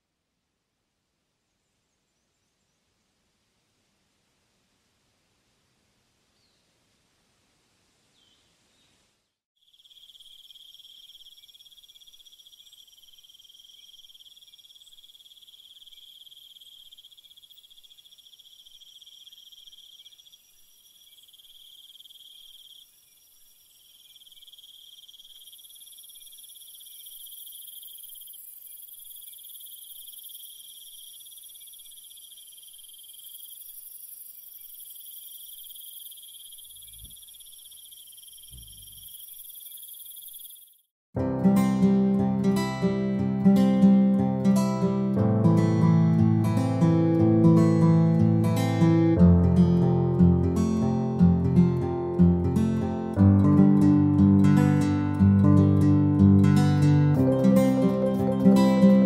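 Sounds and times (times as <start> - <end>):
insects trilling: 9.6 - 40.9, 56.8 - 59.0.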